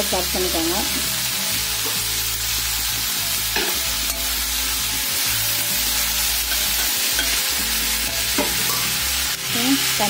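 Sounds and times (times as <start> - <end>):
vegetables sizzling in a pan: 0.0 - 10.0.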